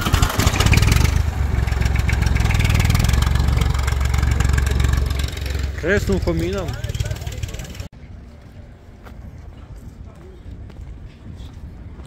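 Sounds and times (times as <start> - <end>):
tractor diesel engine running: 0.0 - 7.9.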